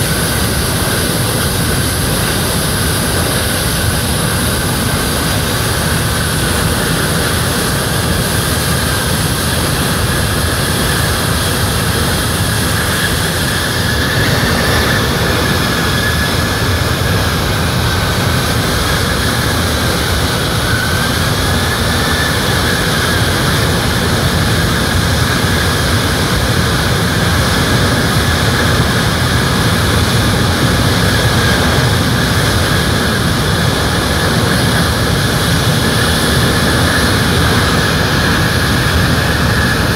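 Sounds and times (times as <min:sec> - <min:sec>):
high engine whine: 0:00.0 - 0:39.9
jet engines running: 0:00.0 - 0:39.9.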